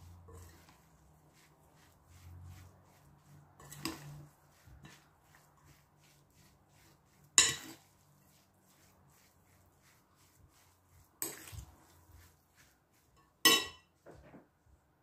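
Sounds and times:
spoon scraping a glass bowl: 0.2 - 0.9, 3.6 - 5.5, 6.8 - 8.3, 11.2 - 12.3, 13.0 - 13.9.

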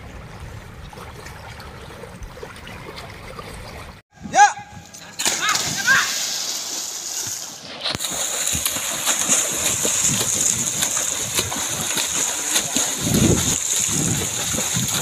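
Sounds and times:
swimmers splashing water: 4.9 - 15.0.

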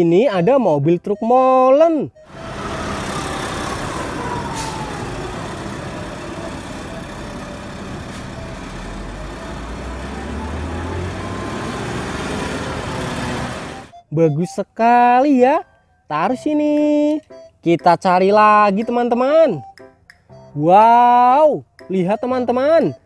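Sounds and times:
diesel truck engine running: 2.2 - 14.0.

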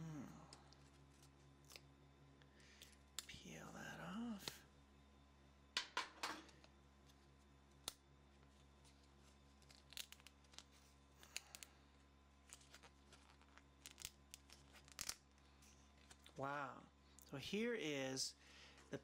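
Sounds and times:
plastic peeling crackles: 6.6 - 11.7, 12.4 - 16.4.

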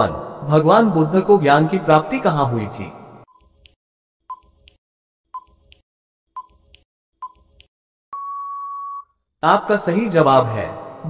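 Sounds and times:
long steady beep: 8.1 - 9.1.

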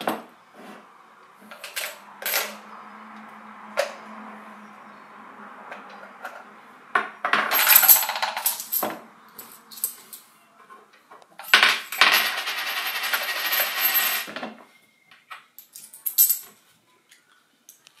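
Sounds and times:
coins clattering in plastic box: 7.4 - 8.8, 11.4 - 14.4.

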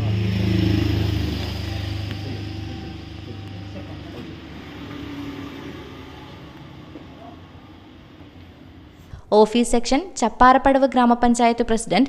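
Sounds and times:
low rumble: 0.0 - 9.1.

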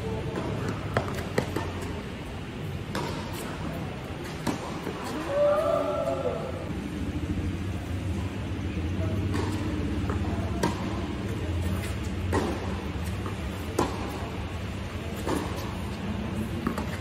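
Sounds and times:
tennis ball hits and bounces: 0.2 - 2.0, 2.9 - 5.2, 9.2 - 17.0
low hum: 6.0 - 11.0.

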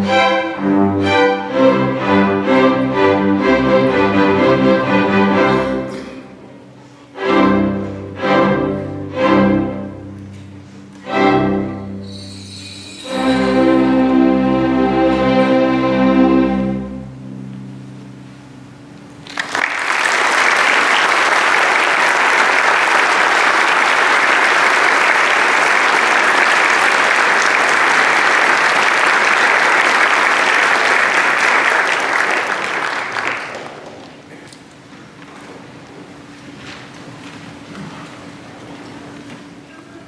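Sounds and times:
string orchestra chord: 0.0 - 12.2, 12.9 - 19.2
audience applause: 19.2 - 34.3.

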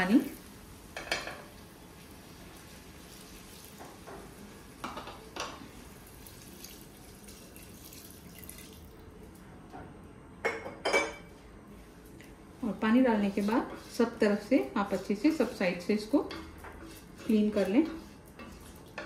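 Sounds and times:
water pouring into a pot: 2.8 - 3.8, 6.0 - 9.2.

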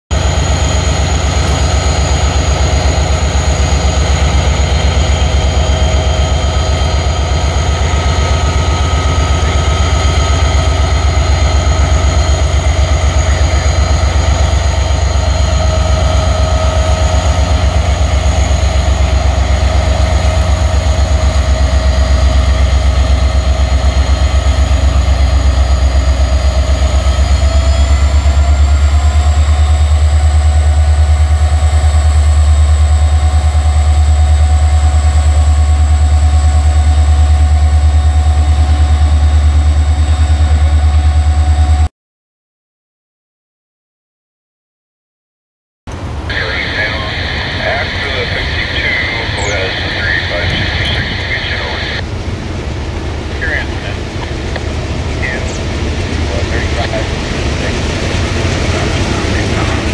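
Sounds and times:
locomotive engine rumble: 0.1 - 41.9, 45.9 - 59.9
high whines: 0.2 - 28.1, 45.9 - 59.9.

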